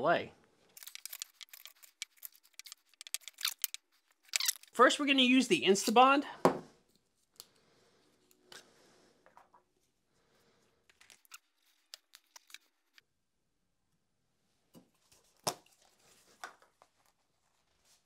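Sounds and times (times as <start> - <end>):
plastic parts clicking and tapping: 0.8 - 4.7.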